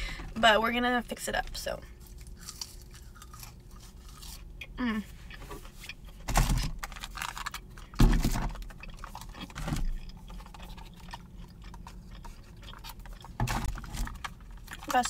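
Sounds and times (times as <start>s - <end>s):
plastic packaging rustling: 6.2s - 10.9s.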